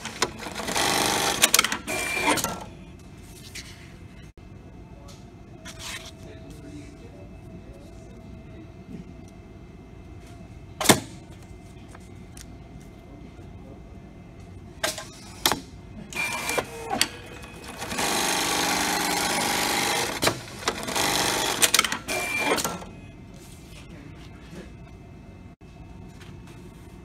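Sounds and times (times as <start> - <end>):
sewing machine stitching: 16.2 - 22.7.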